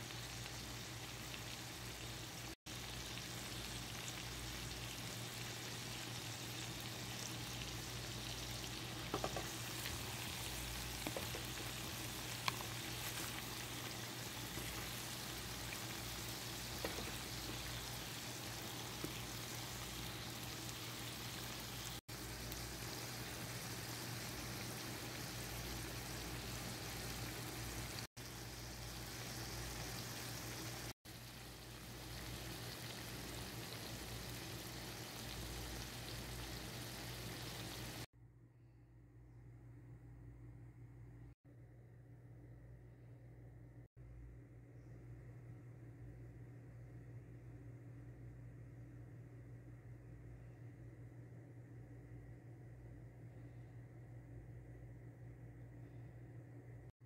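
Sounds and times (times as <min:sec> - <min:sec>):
gravy sizzling in a pan: 0:00.0 - 0:38.1
low steady hum: 0:00.0 - 0:57.0.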